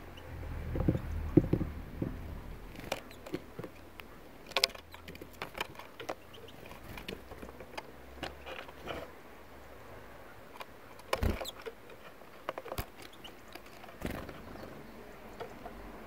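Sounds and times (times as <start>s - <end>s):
dull thumps: 0.6s - 3.8s.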